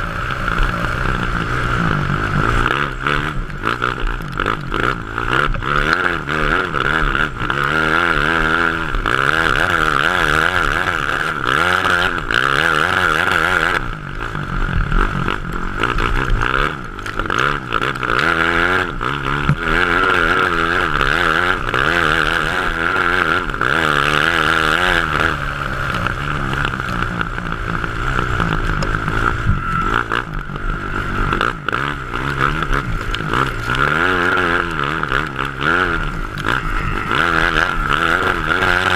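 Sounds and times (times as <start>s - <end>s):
kart engine revving: 0.0s - 38.9s.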